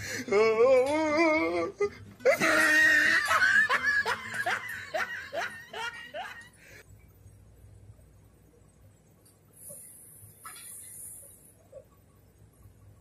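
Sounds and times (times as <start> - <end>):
person laughing: 1.8 - 6.5.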